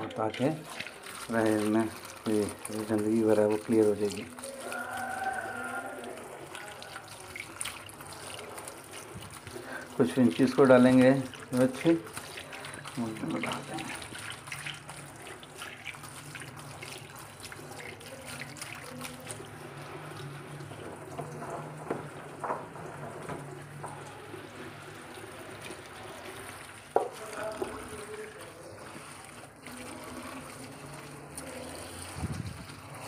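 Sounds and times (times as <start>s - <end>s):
wet spinach turned by hand: 0.0s - 21.8s
tap running into steel sink: 21.1s - 24.2s, 26.9s - 27.8s.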